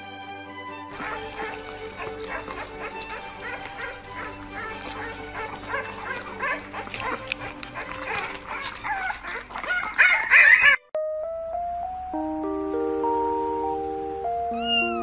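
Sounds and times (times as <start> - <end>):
background music: 0.0 - 15.0
puppy whimpering and squealing: 0.9 - 10.9, 14.6 - 15.0.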